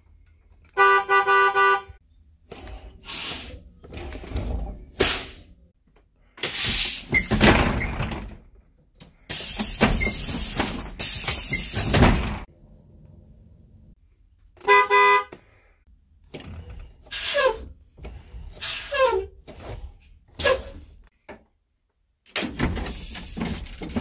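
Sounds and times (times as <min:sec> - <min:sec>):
bus horn honks: 0:00.7 - 0:02.0, 0:14.6 - 0:15.4
air brake hisses: 0:03.0 - 0:03.7, 0:05.0 - 0:05.5, 0:06.4 - 0:07.2, 0:09.2 - 0:11.9, 0:17.1 - 0:17.7, 0:18.6 - 0:19.2.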